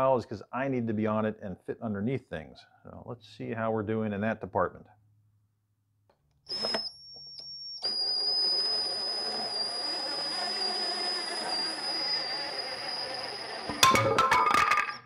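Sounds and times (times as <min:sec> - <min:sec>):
cordless drill motor whining: 0:06.5 - 0:13.9.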